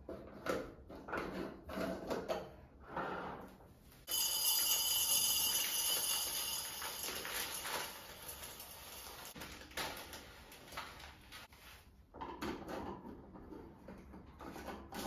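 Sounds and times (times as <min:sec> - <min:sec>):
dry lentils pouring into glass jar: 0:04.2 - 0:09.4.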